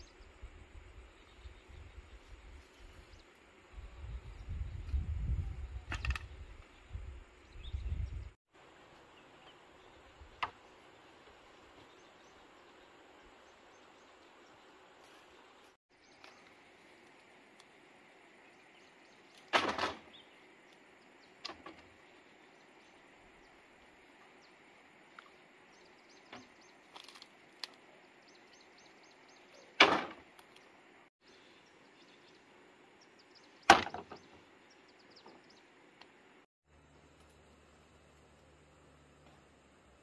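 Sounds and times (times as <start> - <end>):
bamboo poles knocking: 33.7 - 34.2.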